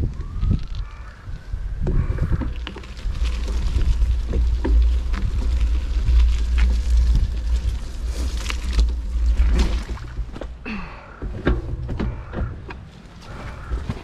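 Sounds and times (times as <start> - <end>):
wind rumble on microphone: 0.0 - 10.6
bicycle clicking and rattling: 0.6 - 10.6.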